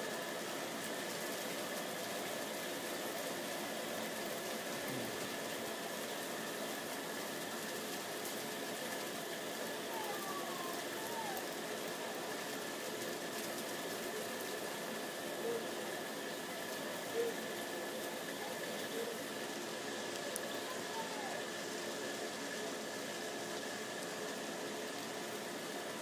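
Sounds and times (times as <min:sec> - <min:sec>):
heavy rain pouring: 0:00.0 - 0:26.0
raindrops drumming on pavement: 0:00.0 - 0:26.0.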